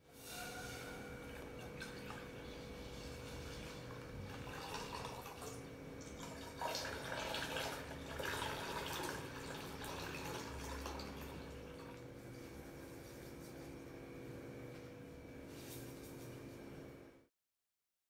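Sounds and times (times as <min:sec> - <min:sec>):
milk pouring into a saucepan: 0:03.6 - 0:12.1.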